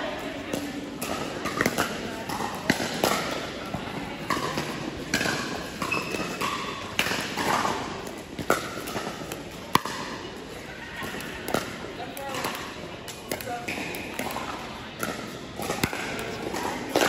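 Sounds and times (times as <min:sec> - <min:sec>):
faint voices: 0:00.0 - 0:17.0
ball bouncing on court: 0:00.4 - 0:10.2, 0:11.0 - 0:17.0.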